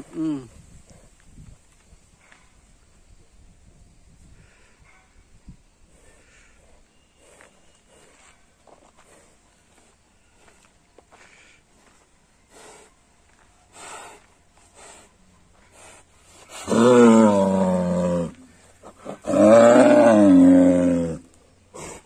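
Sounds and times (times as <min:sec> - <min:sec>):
bull bellowing: 0:16.5 - 0:22.0.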